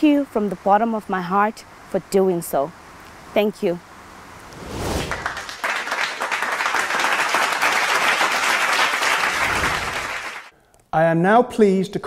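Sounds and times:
people clapping: 5.0 - 10.5.

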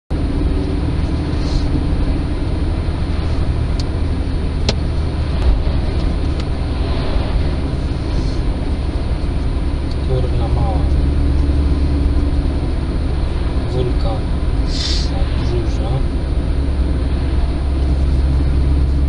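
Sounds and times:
car road and engine rumble: 0.1 - 19.0.

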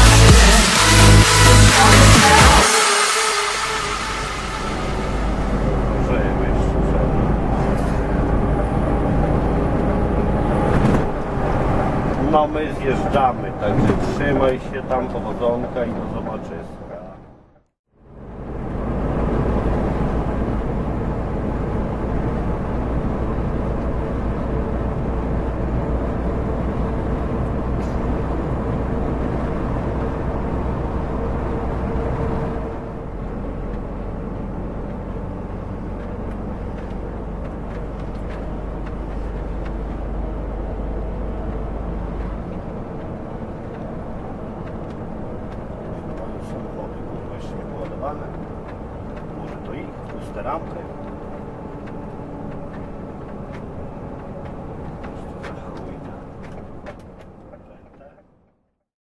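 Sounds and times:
steady hum: 0.0 - 8.6
diesel truck engine drone: 0.0 - 58.7
road and tyre noise: 0.0 - 58.8.

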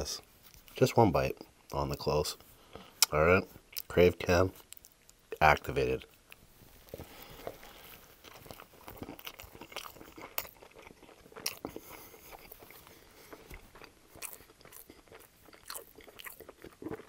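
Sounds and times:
mouth clicks and smacks: 3.0 - 4.0, 4.6 - 5.3
person chewing food: 4.6 - 5.3, 6.0 - 17.0.

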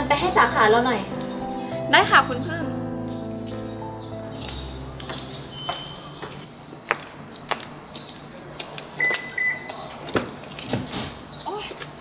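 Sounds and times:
footsteps tapping: 4.3 - 10.4
car remote unlock beep: 9.0 - 9.7.

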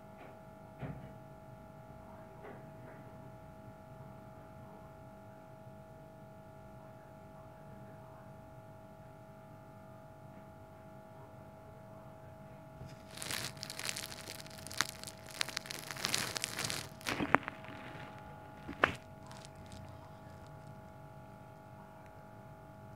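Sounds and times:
scratchy rustling: 12.8 - 20.8.

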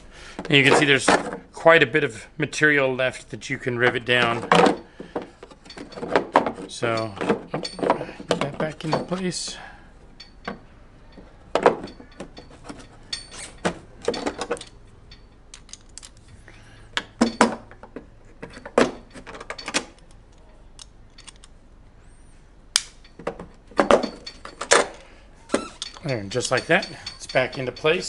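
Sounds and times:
metallic clicks of pliers: 19.6 - 21.6, 25.6 - 28.0.

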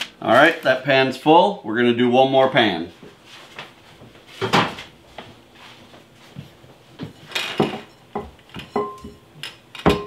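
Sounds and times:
glass bowl knocking on stone counter: 7.6 - 9.2.

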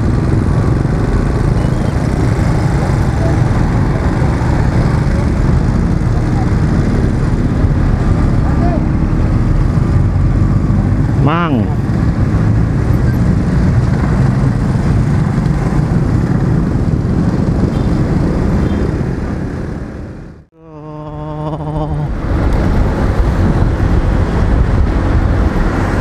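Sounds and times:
scooter engine running: 0.0 - 9.0
traffic: 0.0 - 26.0
wind and road noise: 0.0 - 26.0.

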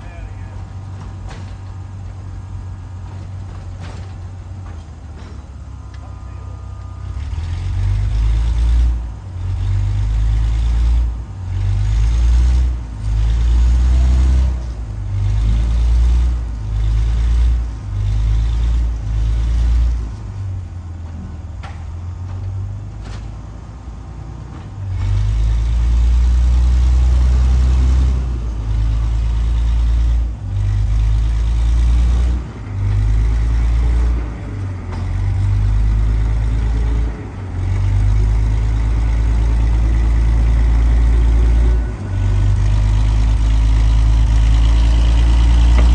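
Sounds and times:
heavy low rumble of rail car: 0.0 - 45.9.

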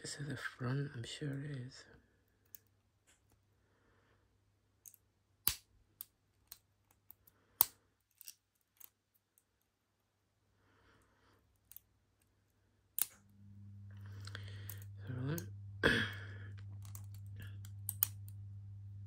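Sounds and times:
low steady hum: 0.0 - 19.0
lock pick clicking in padlock: 17.9 - 18.2.

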